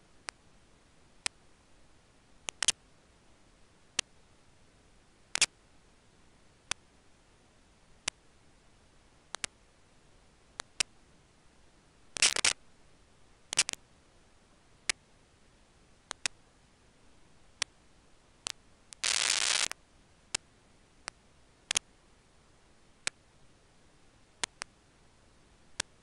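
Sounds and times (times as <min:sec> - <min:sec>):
faint steady hiss: 0:00.0 - 0:26.0
sharp single clicks: 0:02.5 - 0:02.8, 0:05.3 - 0:05.5, 0:09.3 - 0:09.6, 0:16.1 - 0:16.4.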